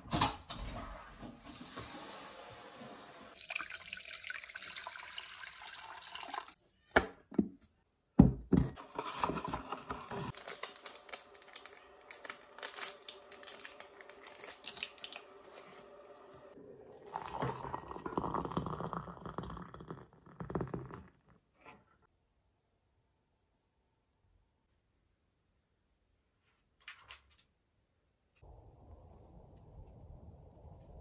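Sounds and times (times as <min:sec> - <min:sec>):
water pouring into a mug: 0:03.4 - 0:06.6, 0:13.2 - 0:21.3
paper wrapper crinkling and tearing: 0:08.8 - 0:16.0.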